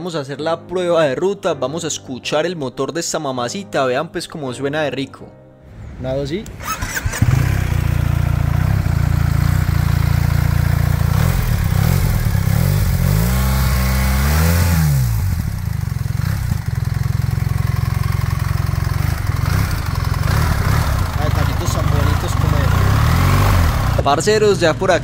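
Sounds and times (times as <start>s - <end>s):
motorcycle engine idling and revving: 6.6s - 25.0s.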